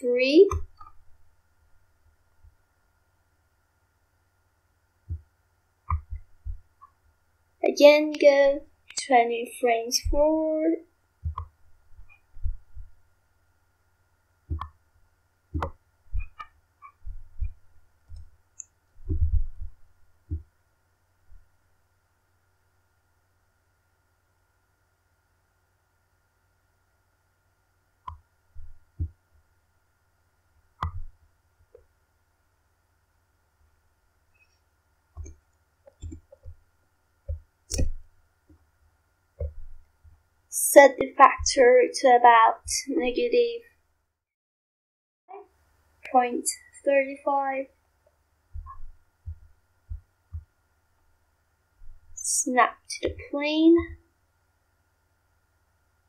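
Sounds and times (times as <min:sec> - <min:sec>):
faint electrical hum: 0:00.0 - 0:44.2, 0:45.3 - 0:56.0
computer mouse clicks: 0:30.8 - 0:31.1, 0:37.3 - 0:38.0.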